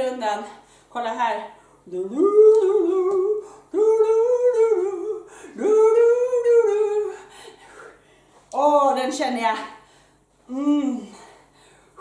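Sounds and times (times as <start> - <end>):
high held vocal notes: 1.9 - 7.3.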